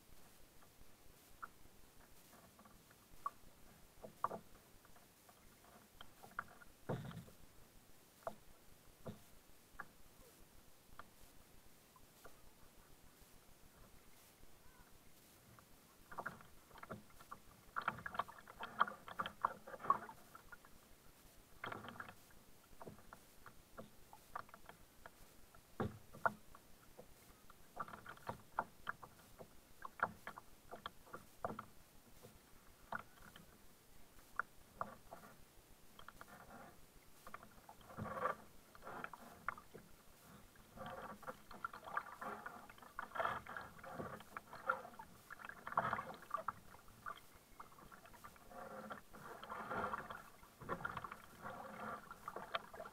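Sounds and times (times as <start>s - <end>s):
kayak paddle splashing water: 16.0s - 52.9s.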